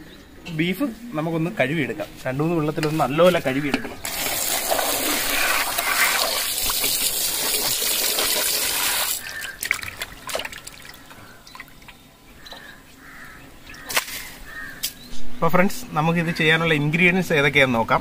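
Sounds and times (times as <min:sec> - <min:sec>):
tap water running into metal bowl: 0:04.0 - 0:11.0
water splashing and sloshing: 0:04.0 - 0:12.1.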